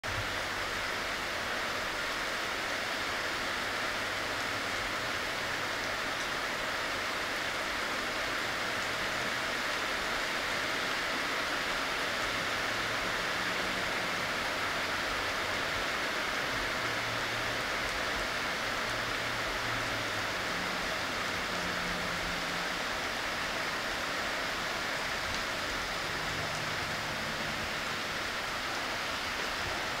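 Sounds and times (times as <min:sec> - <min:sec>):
steady rain falling: 0:00.0 - 0:30.0.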